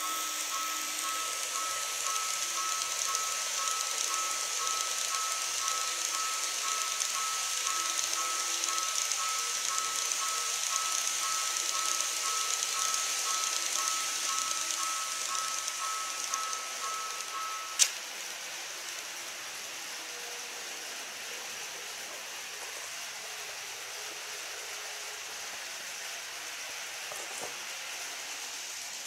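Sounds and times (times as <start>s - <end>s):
two-tone warning alarm: 0.0s - 17.8s
steady hiss: 0.0s - 29.0s.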